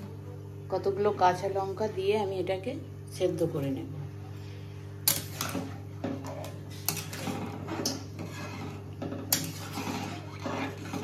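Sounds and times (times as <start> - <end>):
steady low hum: 0.0 - 11.0
metal spatula scraping a pot: 5.0 - 11.0.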